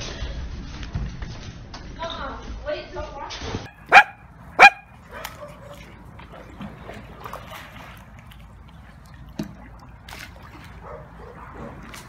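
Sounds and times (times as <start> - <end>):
pool water sloshing and lapping: 3.6 - 12.0.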